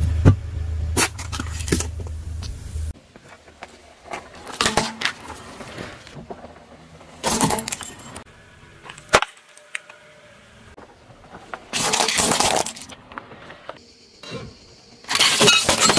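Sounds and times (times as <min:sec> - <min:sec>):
tyre crushing plastic toys: 0:11.6 - 0:13.0.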